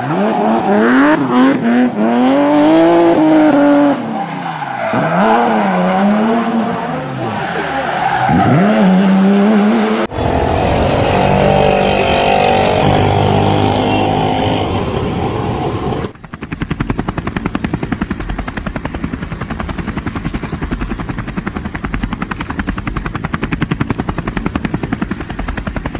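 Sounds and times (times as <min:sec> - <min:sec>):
engine-like hum: 0:00.0 - 0:25.9
helicopter rotor chop: 0:10.1 - 0:25.9.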